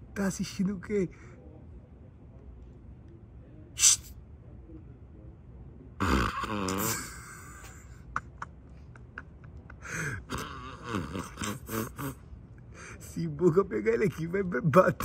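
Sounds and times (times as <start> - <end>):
person gasping: 9.8 - 10.3, 12.7 - 13.0.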